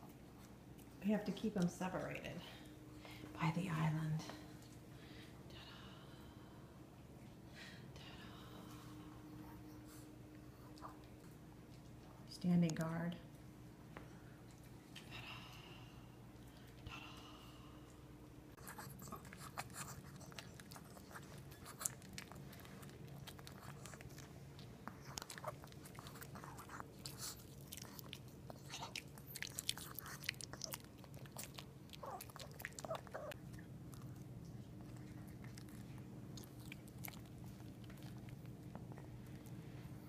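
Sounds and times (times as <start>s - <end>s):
steady low hum: 0.0s - 40.0s
dog chewing and crunching: 18.6s - 40.0s.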